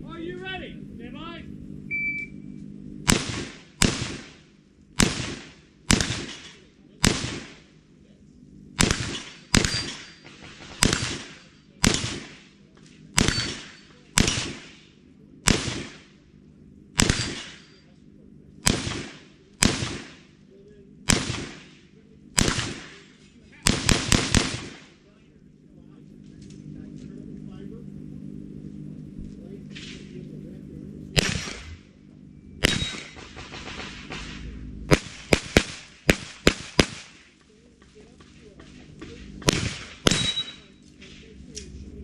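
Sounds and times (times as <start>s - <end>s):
echoing gunshots: 3.0s - 7.8s, 8.8s - 16.2s, 17.0s - 17.8s, 18.6s - 20.4s, 21.0s - 25.0s, 31.2s - 31.8s, 32.6s - 37.4s, 39.4s - 40.7s.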